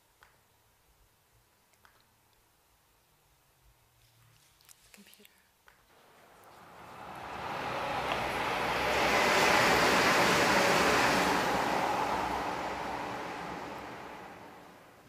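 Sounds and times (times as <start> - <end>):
surf-like rushing noise: 6.0 - 14.8.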